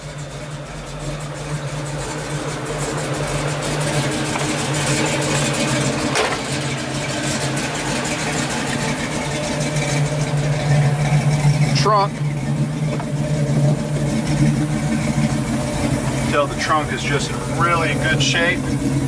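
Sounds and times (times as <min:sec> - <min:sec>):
engine idling: 0:00.0 - 0:19.0.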